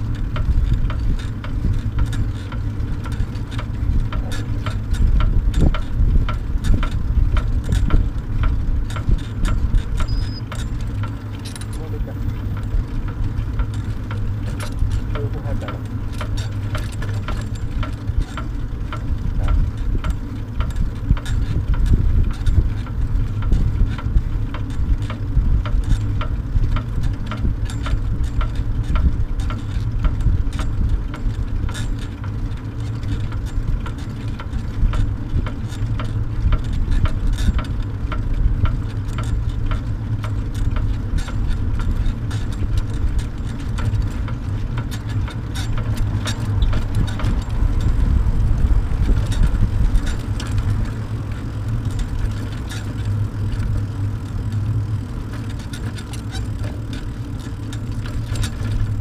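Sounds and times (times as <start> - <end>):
road rumble: 0.0 - 59.0
wind: 0.0 - 59.0.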